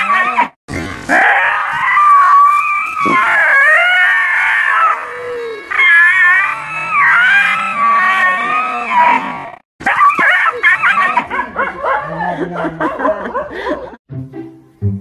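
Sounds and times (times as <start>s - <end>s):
pet animal yowling: 0.0s - 0.5s, 1.1s - 12.1s.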